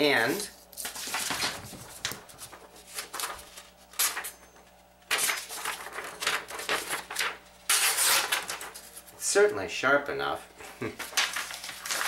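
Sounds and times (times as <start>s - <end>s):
paper rustling: 0.3s - 9.2s, 10.8s - 12.0s
knife slicing paper: 5.1s - 9.1s.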